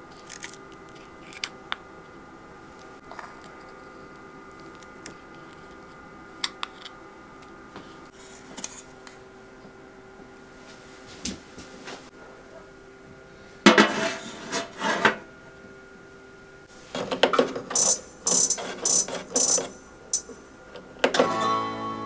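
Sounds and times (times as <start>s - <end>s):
sustained electronic tone: 17.7s - 20.6s.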